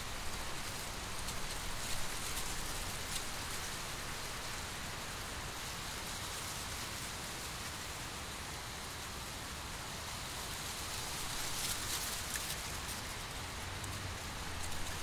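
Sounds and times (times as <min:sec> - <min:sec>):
dry corn leaves rustling: 0:00.1 - 0:15.0.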